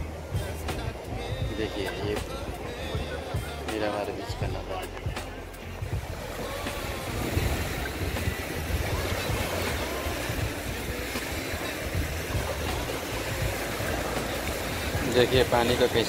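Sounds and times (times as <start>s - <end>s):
wind rumbling on microphone: 0.0s - 16.0s
small waves breaking on sand: 5.7s - 16.0s.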